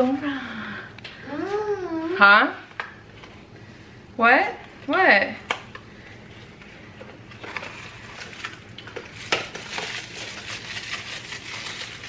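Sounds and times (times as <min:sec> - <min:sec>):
packaging crinkling and rustling: 0:06.4 - 0:12.0.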